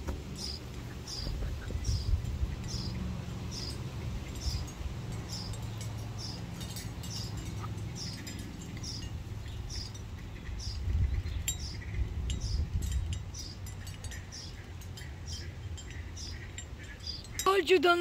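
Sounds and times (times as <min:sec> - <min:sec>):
small bird chirping: 0:00.3 - 0:17.5.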